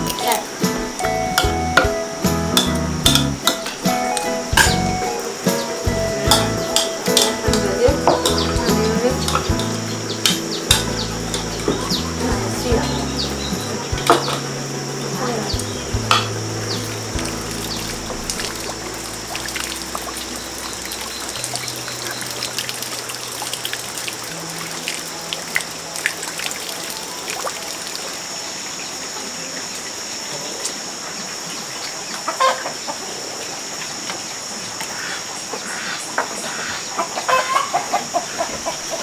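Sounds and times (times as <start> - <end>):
chicken clucking: 32.3 - 33.2, 35.7 - 39.0.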